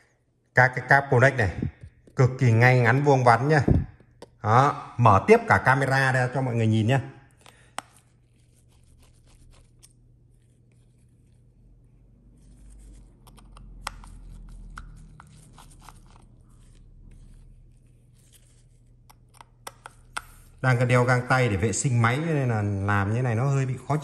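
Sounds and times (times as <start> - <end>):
gloved hands handling phone: 7.3 - 20.8
screwdriver clicks and scrapes: 12.9 - 16.2.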